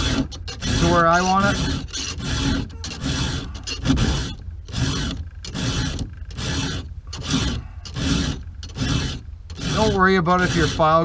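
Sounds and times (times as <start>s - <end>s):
file rasping on saw chain: 0.0s - 11.0s.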